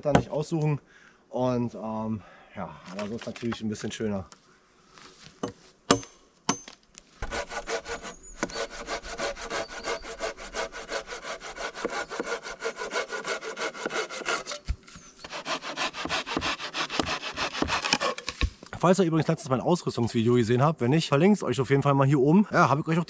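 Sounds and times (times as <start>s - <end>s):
handsaw sawing log: 7.2s - 18.3s.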